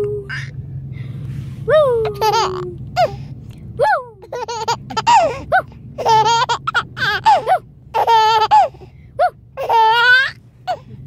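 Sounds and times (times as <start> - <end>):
baby laughing: 2.1 - 3.1, 4.2 - 10.8.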